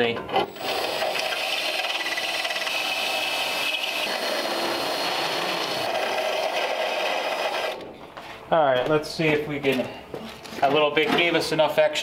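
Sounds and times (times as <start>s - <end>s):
drill grinding metal: 0.4s - 7.8s.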